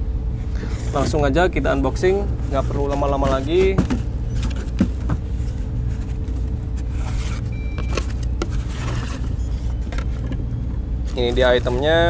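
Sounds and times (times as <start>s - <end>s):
steady low rumble: 0.0s - 12.0s
cardboard flaps scraping: 0.6s - 1.2s, 2.3s - 10.4s, 11.0s - 12.0s.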